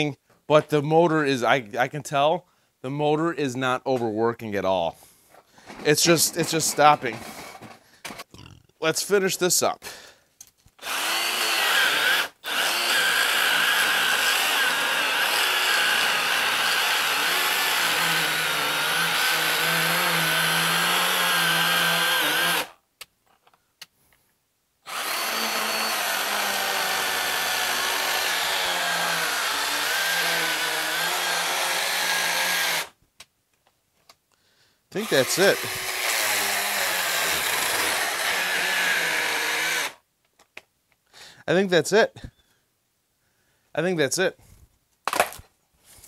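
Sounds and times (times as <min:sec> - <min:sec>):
battery chainsaw cutting log: 0:10.8 - 0:22.8, 0:24.9 - 0:33.0, 0:35.0 - 0:40.0.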